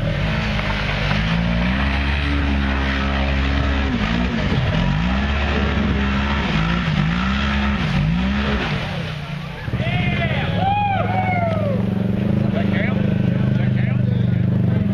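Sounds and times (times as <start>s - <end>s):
buggy engine revving hard: 0.0s - 14.9s.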